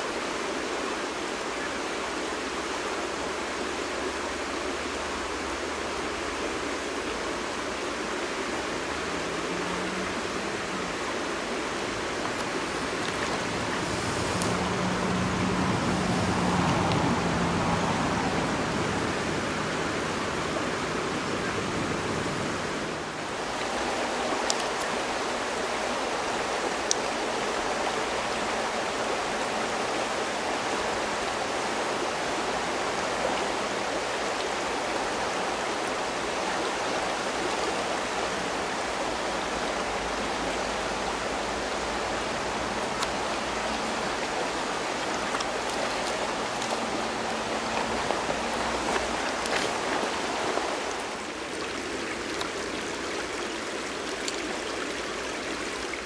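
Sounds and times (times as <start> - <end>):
river rushing over stones: 0.0 - 56.0.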